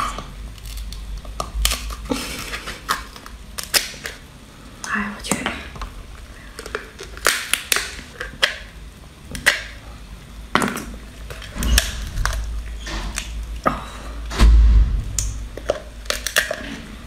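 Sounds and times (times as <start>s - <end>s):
crustacean shell cracking and crunching: 0.0s - 4.3s, 6.1s - 9.8s, 10.6s - 13.8s, 15.1s - 17.0s
low thud: 14.3s - 15.6s.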